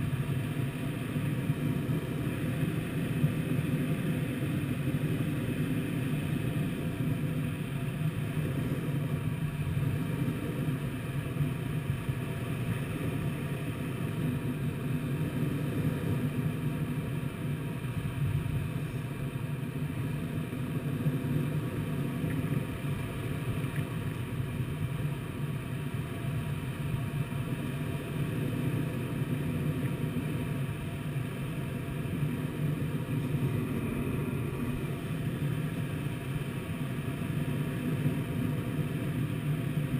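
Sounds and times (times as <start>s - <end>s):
air rushing over glider: 28.1s - 39.9s.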